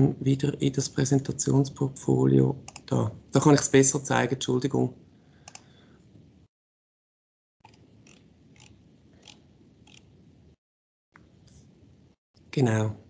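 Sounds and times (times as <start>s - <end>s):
computer mouse clicks: 2.7s - 2.9s, 5.4s - 5.7s, 7.6s - 10.1s.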